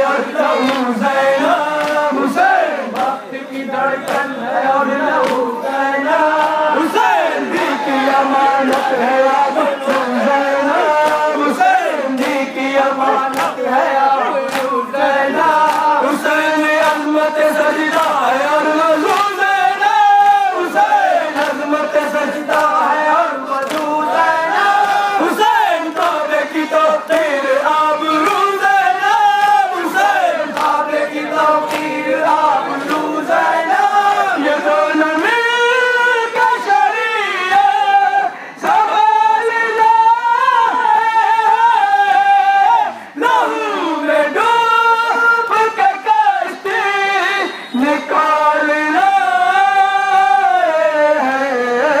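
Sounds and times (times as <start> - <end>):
men chanting a lament: 0.0 - 52.0
hands slapping chests: 1.7 - 2.0, 2.9 - 3.2, 5.2 - 5.5, 8.7 - 9.0, 13.2 - 13.6, 14.4 - 14.8, 15.6 - 15.9, 21.4 - 22.8, 23.6 - 24.0, 29.4 - 32.0.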